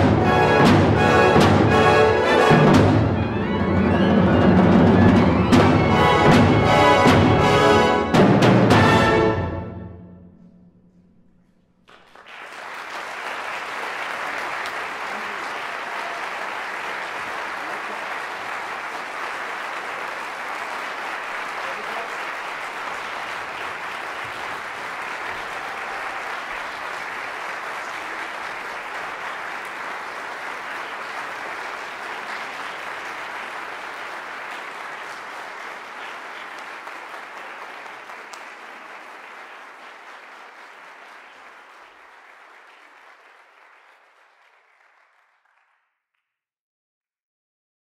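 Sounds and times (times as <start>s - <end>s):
audience applause: 11.8s - 45.9s.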